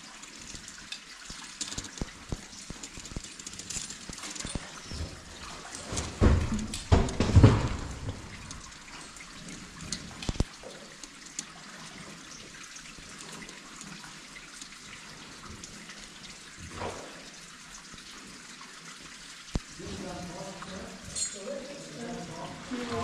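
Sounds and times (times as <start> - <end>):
water trickling and dripping: 0.0 - 23.0
sharp knocks: 6.1 - 8.4.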